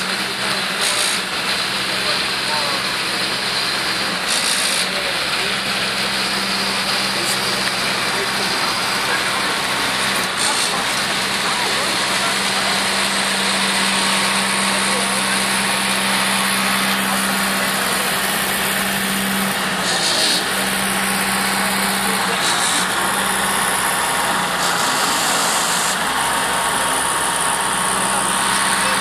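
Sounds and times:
truck diesel engine humming: 0:00.0 - 0:29.0.

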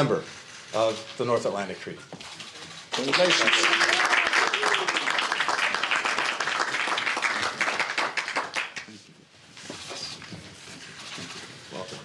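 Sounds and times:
hands clapping: 0:02.9 - 0:09.0.

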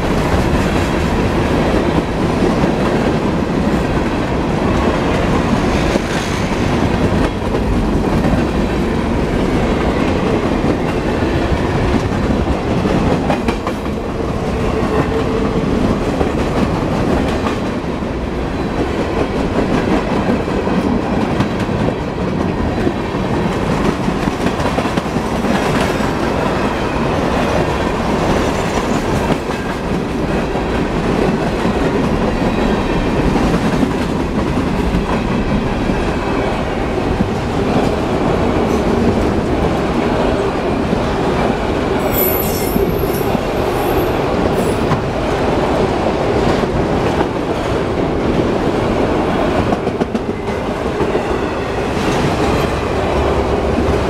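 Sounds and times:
train wheels rolling on rails: 0:00.0 - 0:54.0
high-pitched wheel squeal: 0:42.1 - 0:44.0.

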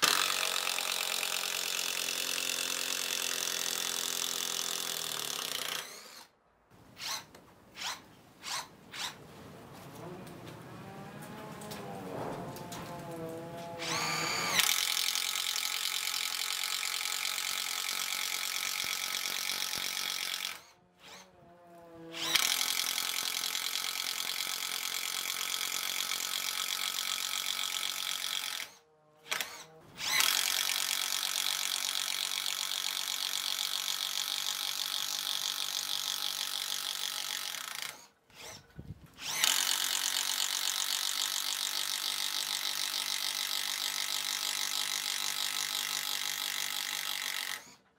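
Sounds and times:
motor whining: 0:07.0 - 0:14.9, 0:20.4 - 0:22.5.

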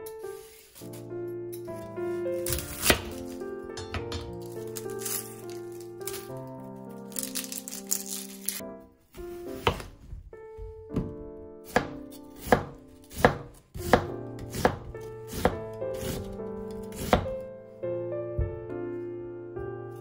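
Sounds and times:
background music: 0:00.0 - 0:20.0
knife slicing onion on wood board: 0:01.8 - 0:03.4, 0:09.5 - 0:10.0, 0:11.7 - 0:17.4.

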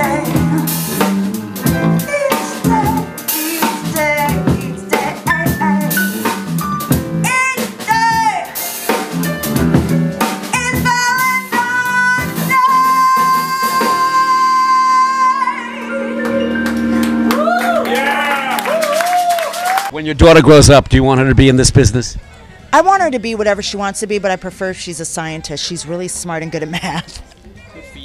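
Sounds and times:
woman singing: 0:00.0 - 0:01.1, 0:01.9 - 0:06.0, 0:07.2 - 0:08.6, 0:10.5 - 0:16.6
electric bass: 0:00.0 - 0:12.6
drums: 0:00.0 - 0:14.7
piano: 0:00.0 - 0:19.9.

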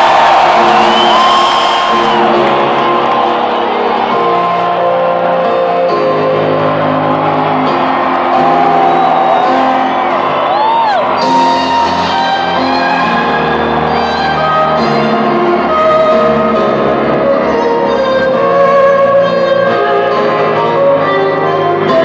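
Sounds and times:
crowd whooping: 0:00.0 - 0:16.3
electronic dance music: 0:00.0 - 0:20.9.

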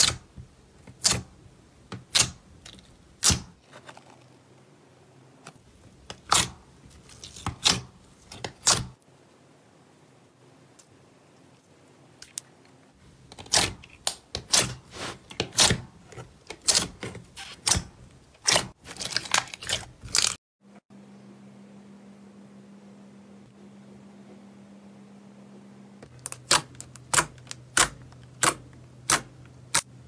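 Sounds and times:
faint steady hum: 0:00.0 - 0:14.5, 0:20.6 - 0:30.0.

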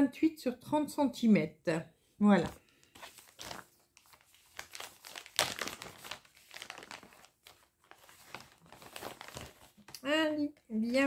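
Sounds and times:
packaging crackling and rustling: 0:02.4 - 0:10.0.

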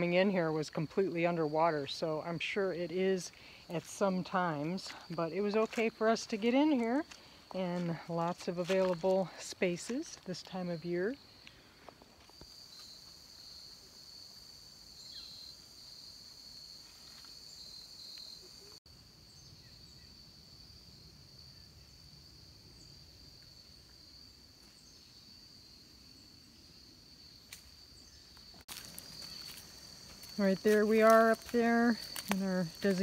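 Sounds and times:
insect trilling: 0:12.3 - 0:20.1, 0:27.3 - 0:33.0.

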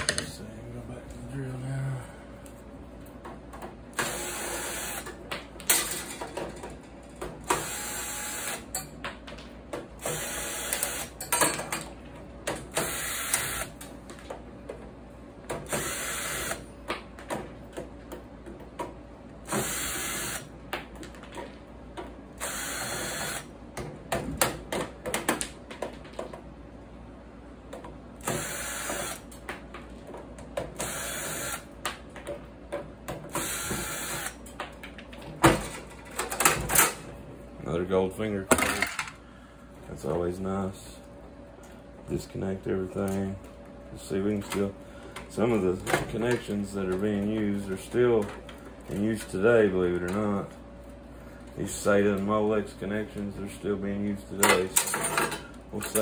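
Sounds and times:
cordless drill running: 0:04.0 - 0:05.0, 0:07.6 - 0:08.6, 0:10.0 - 0:11.1, 0:12.8 - 0:13.7, 0:15.7 - 0:16.6, 0:19.5 - 0:20.4, 0:22.4 - 0:23.5, 0:28.2 - 0:29.2, 0:30.8 - 0:31.6, 0:33.3 - 0:34.3.

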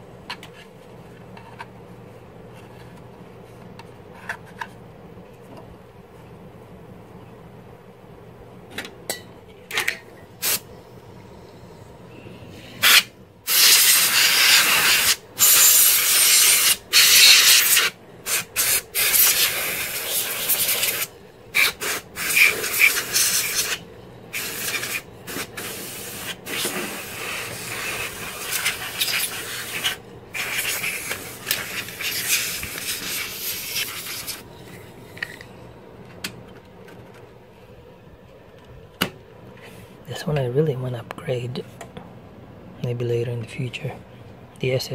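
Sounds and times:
compressed air hissing bursts: 0:10.4 - 0:10.7, 0:12.7 - 0:34.5.

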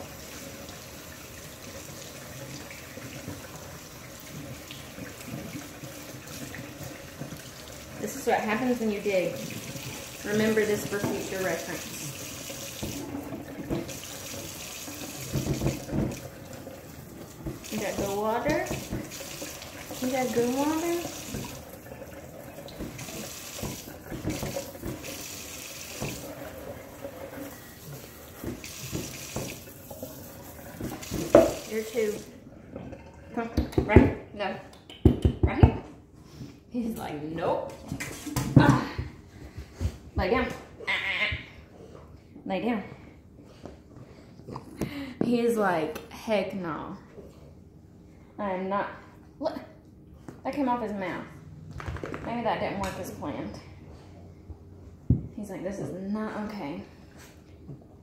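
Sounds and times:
faucet running into metal sink: 0:00.0 - 0:33.1.

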